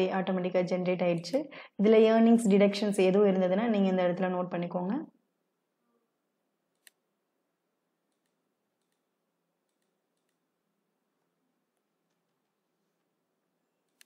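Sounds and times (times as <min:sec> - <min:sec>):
computer mouse click: 0:06.7 - 0:07.0, 0:08.1 - 0:10.4.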